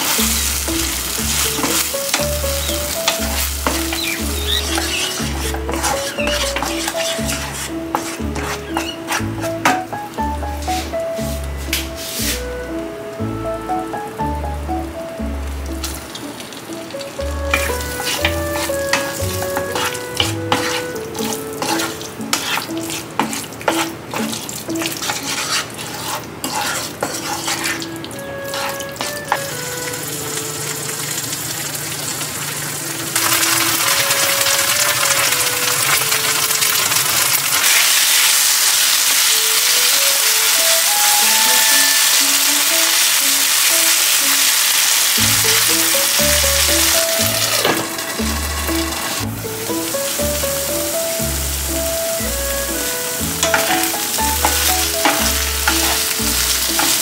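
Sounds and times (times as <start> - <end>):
wooden spatula scraping a pan: 0.0 - 12.6, 17.4 - 29.6, 52.3 - 57.0
light background music: 0.0 - 31.2, 32.8 - 37.5, 38.9 - 57.0
mushrooms sizzling in a pan: 0.0 - 57.0.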